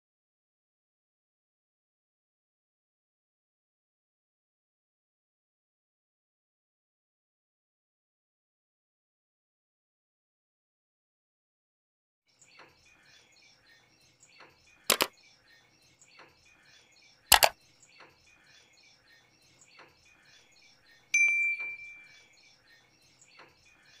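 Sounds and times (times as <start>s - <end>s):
bell ding: 21.2s - 22.1s.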